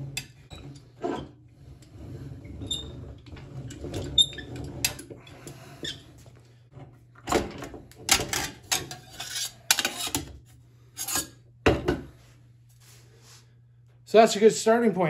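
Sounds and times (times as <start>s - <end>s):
sheet metal scraping on rollers: 0.0s - 6.3s, 8.2s - 10.3s
sharp knocks and scrapes: 8.1s - 10.4s.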